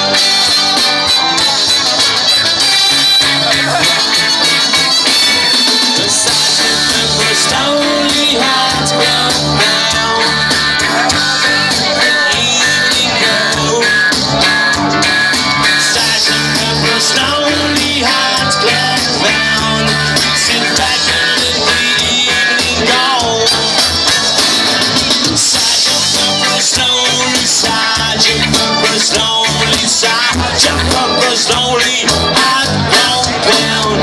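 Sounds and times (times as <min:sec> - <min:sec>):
drums: 0:00.0 - 0:34.0
electric guitars: 0:00.0 - 0:34.0
live rock band playing: 0:00.0 - 0:34.0
person singing: 0:00.0 - 0:34.0.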